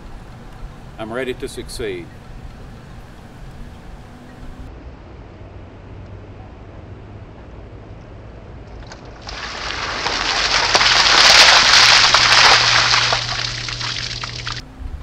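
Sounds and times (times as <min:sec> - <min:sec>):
water splashing: 0:08.9 - 0:14.6.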